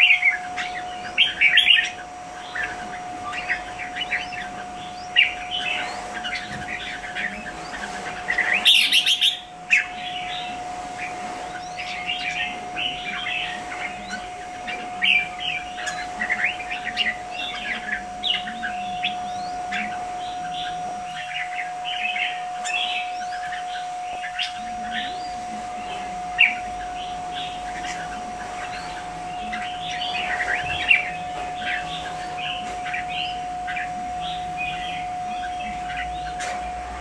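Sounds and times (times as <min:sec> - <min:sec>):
birds chirping and chattering: 0:00.0 - 0:37.0
faint steady hum: 0:00.0 - 0:37.0.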